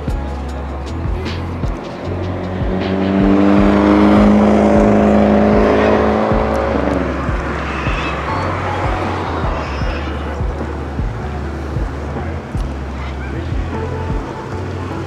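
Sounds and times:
background music with steady beat: 0.0s - 15.0s
car driving past: 2.4s - 13.4s.

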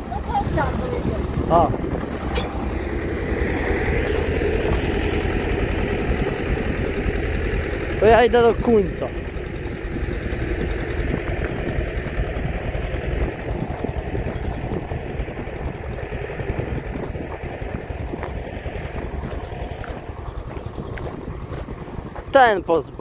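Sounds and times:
tractor engine rumbling: 0.0s - 23.0s.

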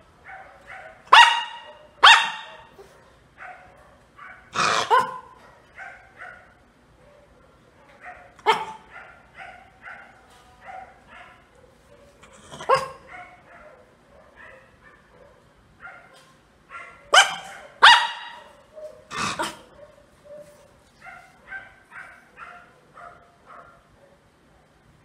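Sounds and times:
dog barking: 0.2s - 24.7s
dog short calls: 4.5s - 5.3s, 17.2s - 19.7s.

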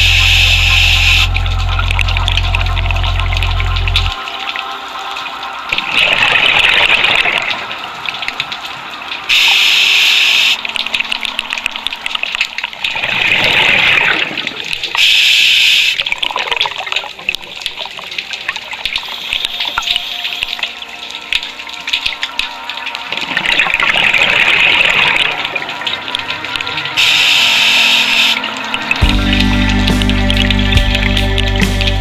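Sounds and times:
regulator inhalation hiss: 0.0s - 1.3s, 9.3s - 10.6s, 15.0s - 16.0s, 27.0s - 28.4s.

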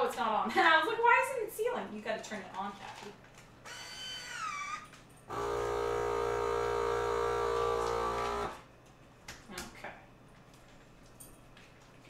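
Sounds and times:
vacuum sealer pump running: 3.6s - 8.7s.

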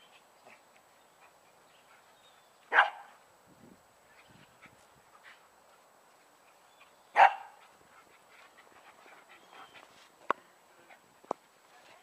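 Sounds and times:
dog barking: 2.7s - 3.1s, 7.2s - 7.6s.

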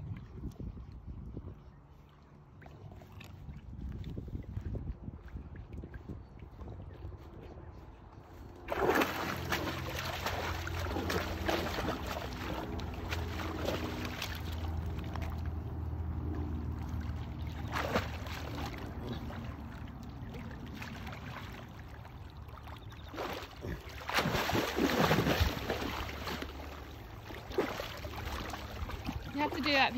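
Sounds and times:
horse wading through water: 0.0s - 29.9s
low hum: 0.0s - 29.9s.

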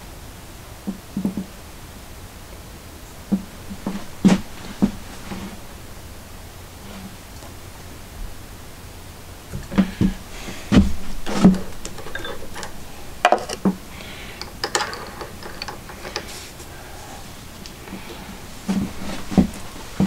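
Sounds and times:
tools and metal parts handled: 11.2s - 16.7s.

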